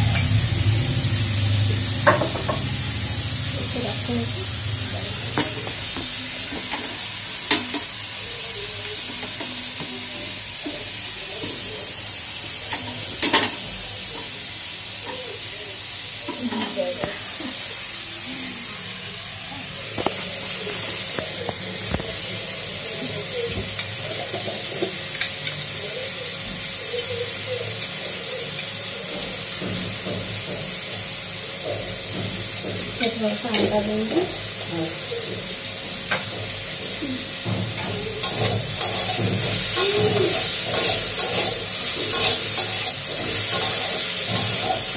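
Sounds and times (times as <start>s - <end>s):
vegetables sizzling in a pan: 0.0s - 44.9s
spatula stirring and scraping pan: 35.8s - 44.9s.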